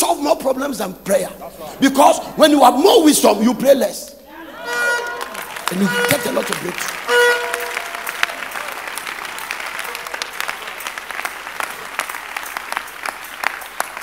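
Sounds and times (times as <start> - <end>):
crowd applauding: 4.6 - 14.0.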